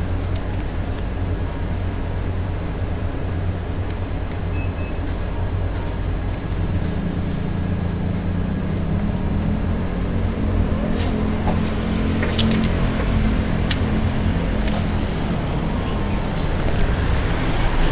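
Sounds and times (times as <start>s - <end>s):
vehicle engine rumbling: 0.0s - 17.9s.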